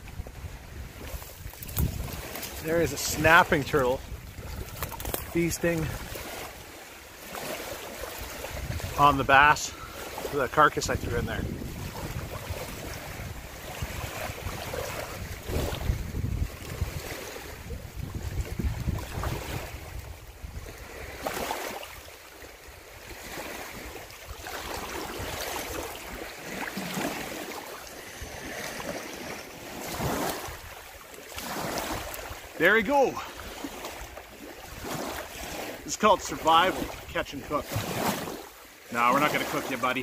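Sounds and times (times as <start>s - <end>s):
wind buffeting microphone: 0.0s - 6.8s, 8.1s - 21.4s
waves lapping against rocks: 0.0s - 40.0s
water splash: 0.9s - 40.0s.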